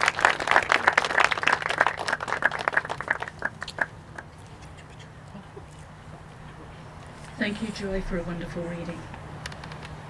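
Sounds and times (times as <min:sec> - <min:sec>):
crowd applauding: 0:00.0 - 0:04.4.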